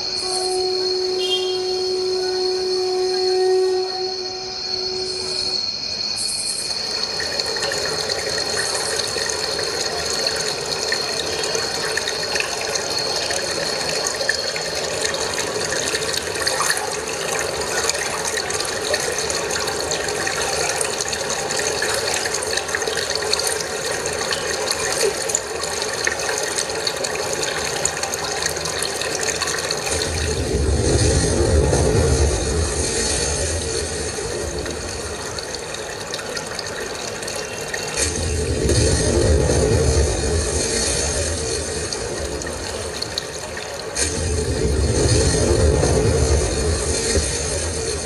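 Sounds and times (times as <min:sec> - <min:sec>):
rushing noise with crackle: 0:06.4 - 0:48.0
deep rumble: 0:29.9 - 0:36.0, 0:38.0 - 0:48.0.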